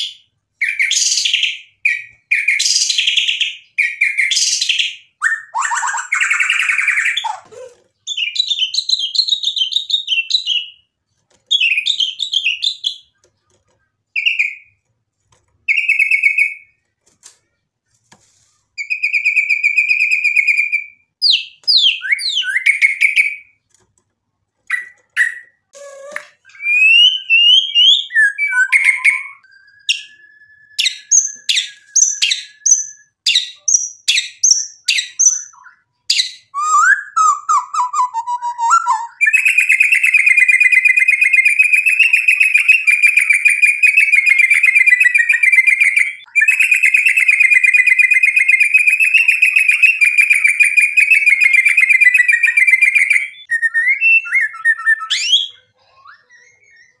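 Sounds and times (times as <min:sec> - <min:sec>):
bird whistling: 0:24.8 - 0:35.8, 0:36.5 - 0:57.0.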